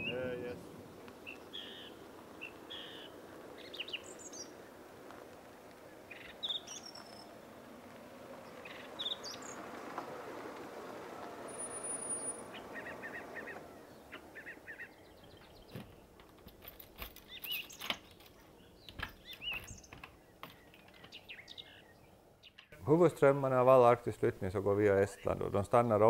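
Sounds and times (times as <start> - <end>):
small birds chirping: 0.0 - 10.6, 11.2 - 26.0
car engine and tyres: 0.0 - 26.0.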